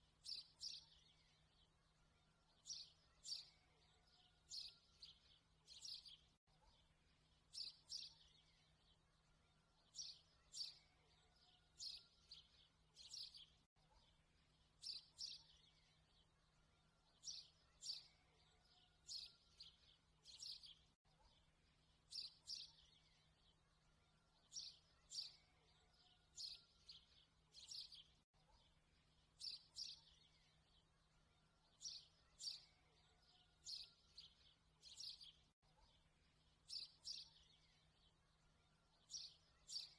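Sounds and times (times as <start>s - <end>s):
birds chirping: 7.5s - 14.2s, 14.8s - 39.9s.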